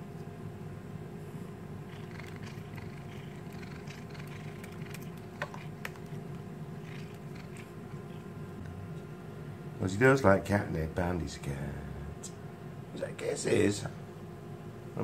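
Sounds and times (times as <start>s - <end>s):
cat purring: 1.7s - 9.0s
cat chewing biscuit: 1.8s - 8.7s.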